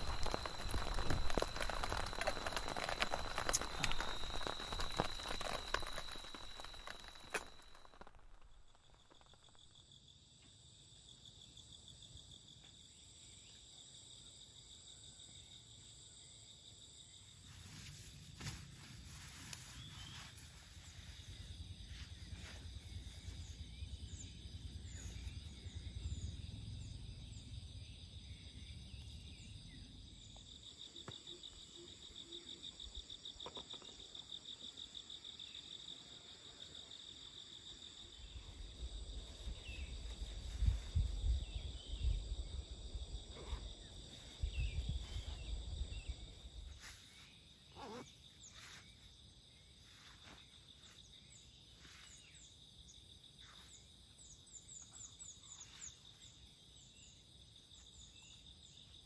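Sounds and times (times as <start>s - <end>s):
pulsing insect trill: 0.0s - 12.5s
insects chorus: 0.0s - 59.0s.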